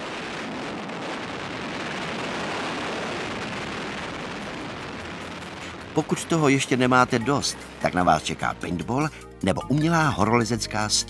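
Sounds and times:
wind rushing across microphone: 0.0s - 8.8s.

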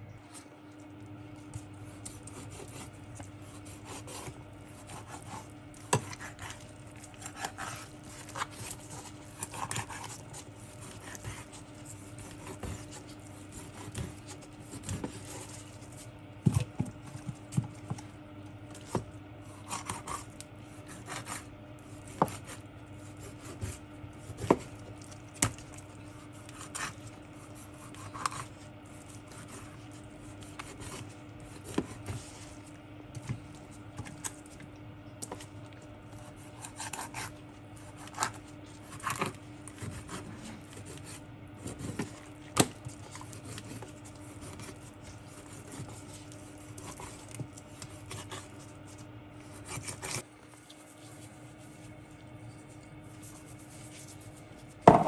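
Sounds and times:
knife scraping fish skin: 1.9s - 16.7s, 19.6s - 32.5s, 36.2s - 50.2s.

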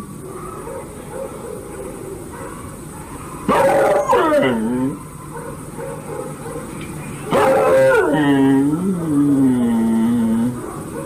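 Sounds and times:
dog whining howl: 2.3s - 6.0s, 7.3s - 11.0s.

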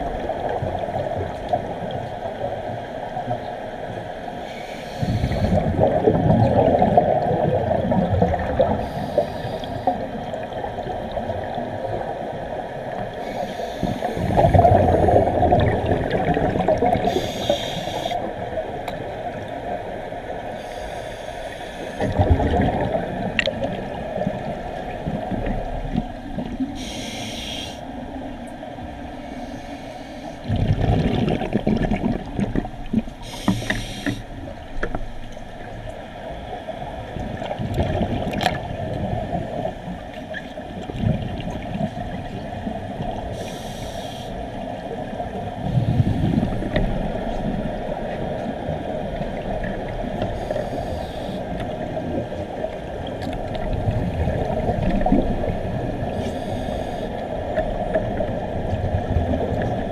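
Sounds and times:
scuba regulator hiss: 4.4s - 5.6s, 8.8s - 9.9s, 13.2s - 14.4s, 17.0s - 18.2s, 20.6s - 22.0s, 26.8s - 27.8s, 29.2s - 30.4s, 33.2s - 34.3s, 43.4s - 44.4s, 50.4s - 51.4s, 56.2s - 57.1s
exhaled bubbles underwater: 4.9s - 13.2s, 13.8s - 20.6s, 22.0s - 27.2s, 30.4s - 35.0s, 36.6s - 59.9s.

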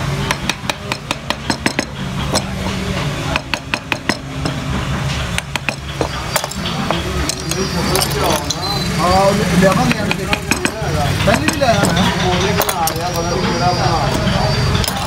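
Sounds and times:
wooden mallet knocking on gouge: 3.3s - 7.0s, 9.7s - 12.1s.

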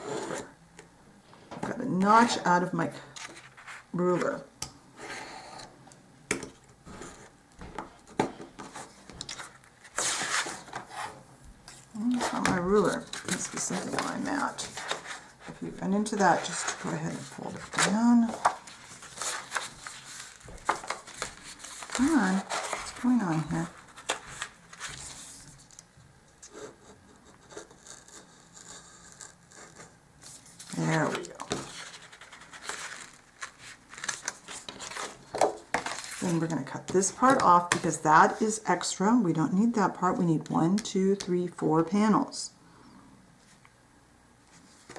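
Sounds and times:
paper rustling and sliding: 3.1s - 3.9s, 6.8s - 25.8s, 30.2s - 37.8s.

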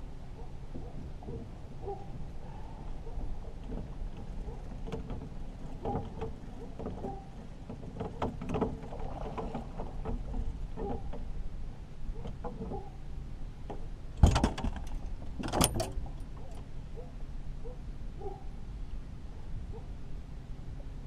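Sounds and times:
water splashing against boat: 0.0s - 16.7s.

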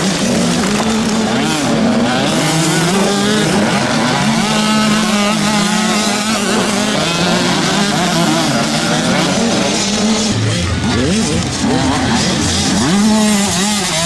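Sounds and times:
two-stroke motocross bikes revving: 0.0s - 14.0s.

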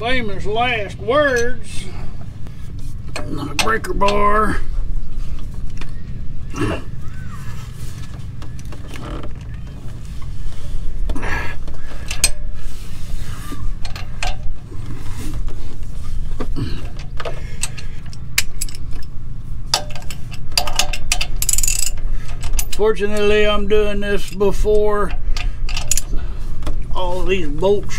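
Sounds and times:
ratchet clicks and metallic clinks: 19.7s - 23.3s.

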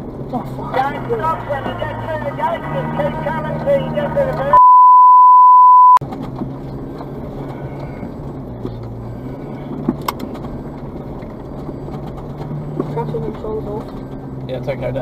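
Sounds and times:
vehicle engine climbing: 0.0s - 4.6s, 6.0s - 15.0s
censor bleep: 4.5s - 6.0s.

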